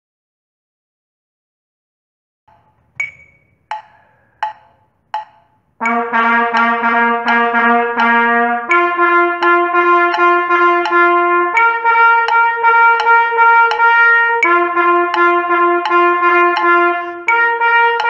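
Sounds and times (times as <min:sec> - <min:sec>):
trumpet tongued notes: 0:05.8 - 0:18.0.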